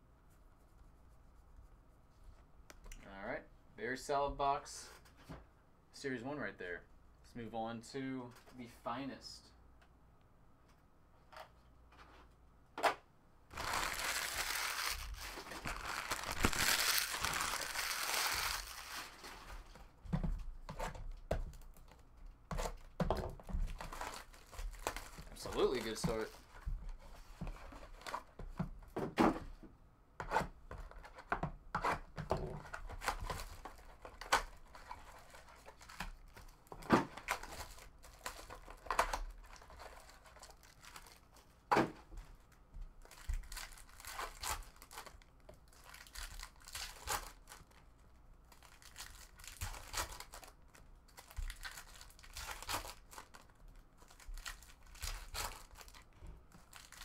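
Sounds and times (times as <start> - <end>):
foil wrappers tearing and crinkling: 13.5 - 19.6, 23.7 - 26.3, 37.2 - 41.4, 43.0 - 47.9, 48.5 - 57.0.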